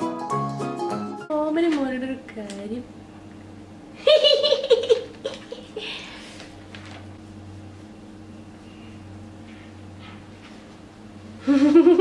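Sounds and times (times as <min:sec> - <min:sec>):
faint steady hum: 0:01.3 - 0:12.0
woman giggling: 0:04.0 - 0:06.1, 0:11.4 - 0:12.0.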